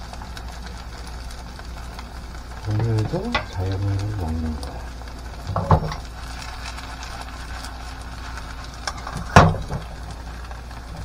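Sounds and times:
pancake sizzling in pan: 0:00.0 - 0:11.0
steady low hum: 0:00.0 - 0:11.0
pan knocking on burner grate: 0:02.8 - 0:03.6, 0:05.5 - 0:06.0, 0:08.9 - 0:09.9.

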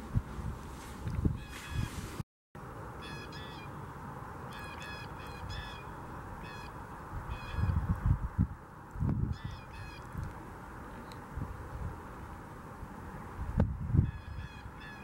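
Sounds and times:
blue jays calling: 0:03.0 - 0:03.8, 0:04.5 - 0:07.8.

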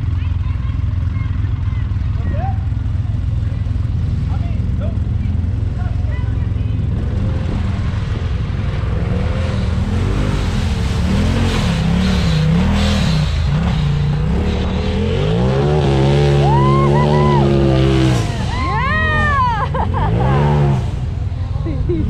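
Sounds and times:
utv engine revving: 0:00.0 - 0:21.8.

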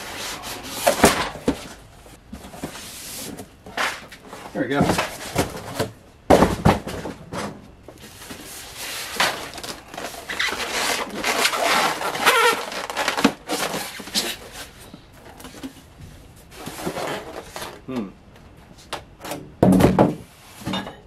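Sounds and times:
styrofoam creaking and squeaking: 0:08.0 - 0:14.9.

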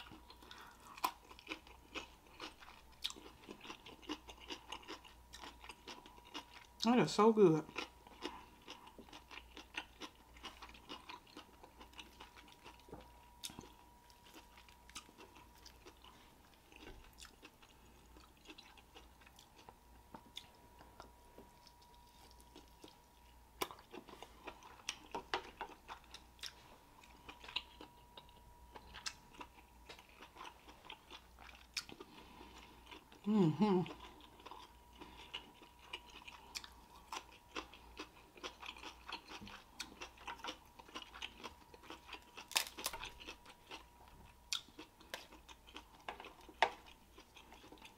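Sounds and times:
close chewing: 0:00.0 - 0:06.9, 0:07.6 - 0:47.9.

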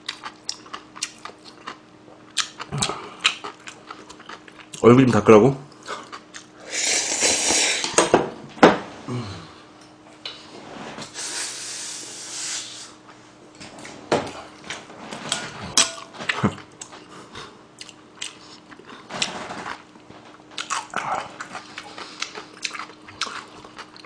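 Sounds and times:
chewing and lip smacks: 0:00.0 - 0:04.8, 0:05.7 - 0:06.6, 0:17.8 - 0:19.0, 0:20.6 - 0:24.0
faint steady hum: 0:00.0 - 0:24.0
noisy slurp: 0:05.8 - 0:08.0.

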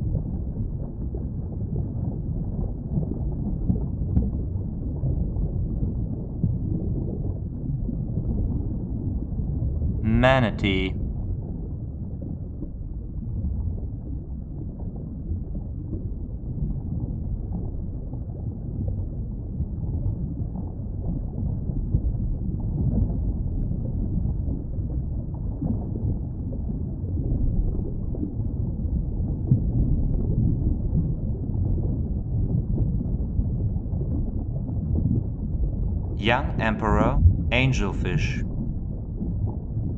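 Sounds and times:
underwater low rumble: 0:00.0 - 0:10.0, 0:11.0 - 0:36.2, 0:37.0 - 0:39.9.

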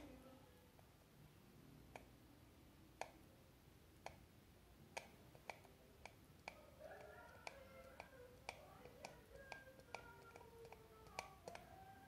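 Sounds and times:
faint soldering clicks: 0:05.0 - 0:11.7.

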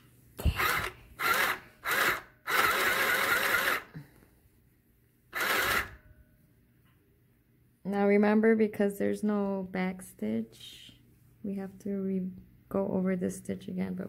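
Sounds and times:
sewing machine stitching: 0:00.4 - 0:03.9, 0:05.3 - 0:06.0.

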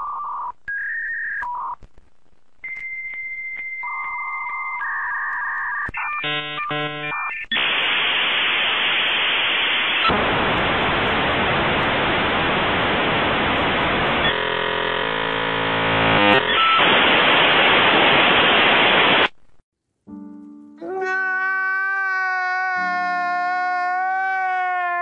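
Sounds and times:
modem tones: 0:02.6 - 0:10.2, 0:13.8 - 0:19.4
static hiss: 0:05.9 - 0:19.6.

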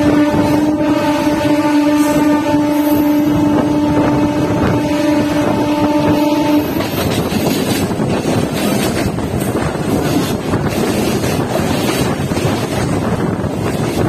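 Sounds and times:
train horn: 0:00.0 - 0:07.3
train rumbling at speed: 0:00.0 - 0:14.0.

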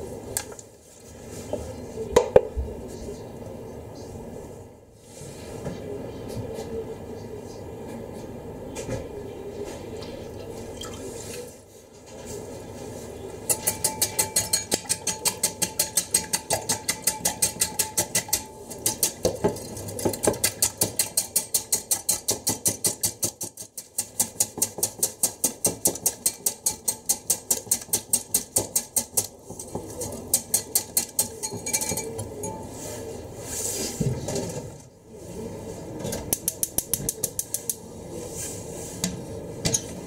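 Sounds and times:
whisk ticking against glass bowl: 0:13.5 - 0:29.3, 0:30.3 - 0:32.6.

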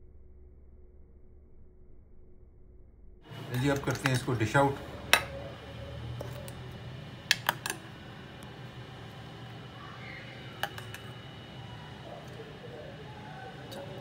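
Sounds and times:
low steady hum: 0:00.0 - 0:14.0
spoon clinking on dishes: 0:10.6 - 0:11.1.

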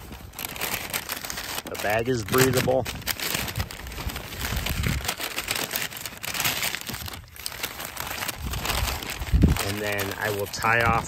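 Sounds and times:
paper bag crinkling: 0:00.0 - 0:11.0.

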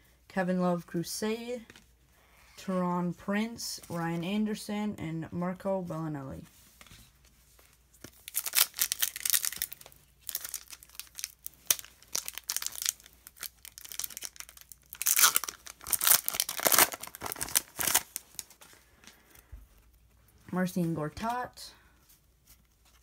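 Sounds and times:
card pack wrapper tearing and crinkling: 0:08.0 - 0:18.6.

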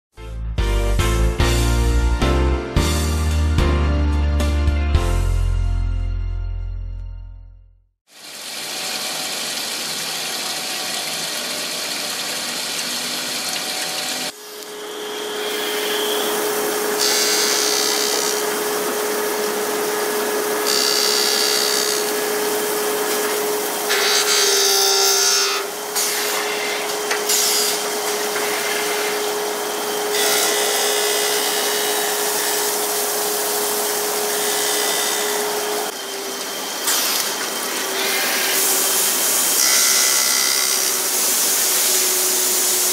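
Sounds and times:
machine noise: 0:08.1 - 0:42.9
grinding spindle whine: 0:08.4 - 0:42.9
harsh hissing of grinding wheel: 0:13.7 - 0:42.9.

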